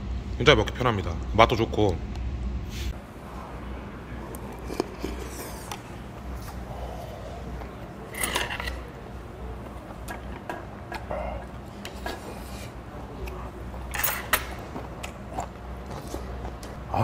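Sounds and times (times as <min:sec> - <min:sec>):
metal spoon scraping pot: 0:08.1 - 0:09.0.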